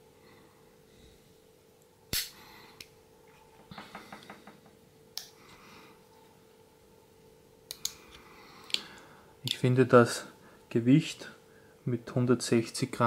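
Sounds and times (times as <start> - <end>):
multitool metallic clicks and snaps: 2.1 - 2.9, 7.7 - 8.0.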